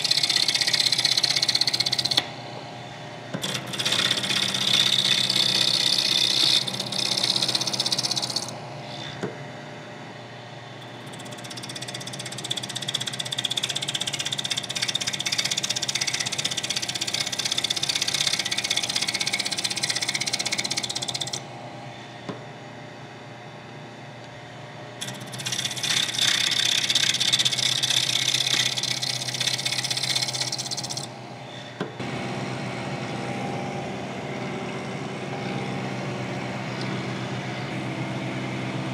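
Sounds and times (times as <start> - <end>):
end mill cutting metal: 0.0 - 9.3, 10.8 - 21.6, 25.0 - 31.2
spindle motor humming: 0.0 - 22.8, 24.1 - 38.9.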